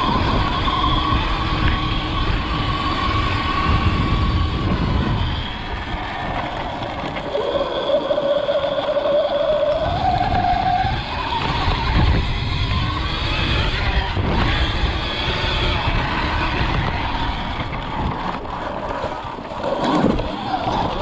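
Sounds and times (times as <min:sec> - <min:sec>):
electric dirt bike motor whining: 0:00.0 - 0:21.0
wind rumble on microphone: 0:00.0 - 0:21.0.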